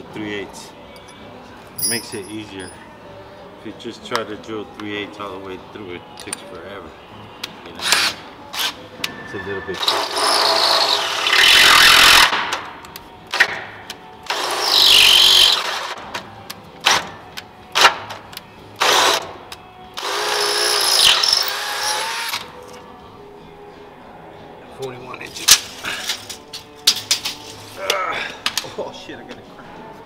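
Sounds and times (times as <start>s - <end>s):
cordless drill boring through steel: 9.8s - 12.2s, 14.3s - 15.9s, 20.0s - 22.4s.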